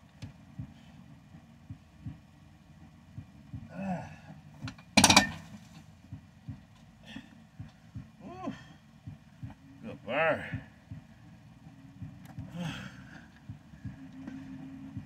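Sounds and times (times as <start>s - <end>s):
man grunting: 3.7s - 4.3s, 8.2s - 8.7s, 9.9s - 10.6s
dumbbells clattering: 4.6s - 5.7s.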